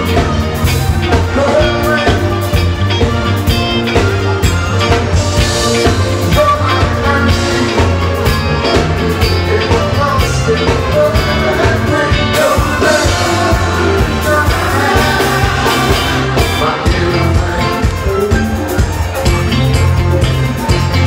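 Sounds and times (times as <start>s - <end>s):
man singing: 0.0s - 3.6s, 5.6s - 18.8s
horn section playing: 0.0s - 18.7s
drum kit: 0.0s - 21.0s
electric bass: 0.0s - 21.0s.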